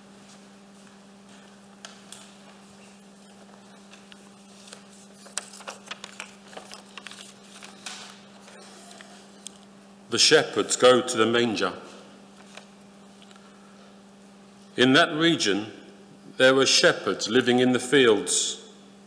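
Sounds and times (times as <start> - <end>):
faint footsteps and shuffles: 0.0 - 4.9.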